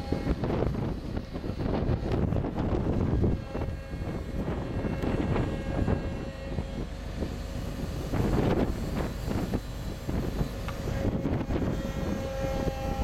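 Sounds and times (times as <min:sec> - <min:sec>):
faint steady whine: 0:00.0 - 0:13.0
low rumble of deck machinery: 0:00.0 - 0:13.0
wind gusting across microphone: 0:00.0 - 0:13.0.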